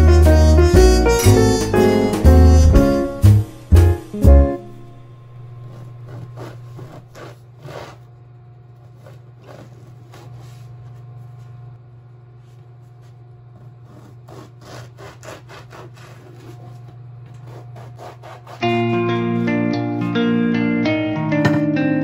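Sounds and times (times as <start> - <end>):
knife sawing through bread: 0.0 - 3.1, 5.6 - 11.0, 13.0 - 19.3.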